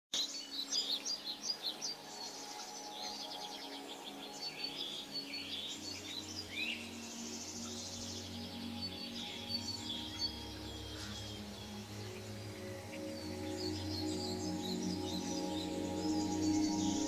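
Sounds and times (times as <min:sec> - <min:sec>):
faint steady background tones: 0:00.2 - 0:17.0
small birds chirping and trilling: 0:00.2 - 0:17.0.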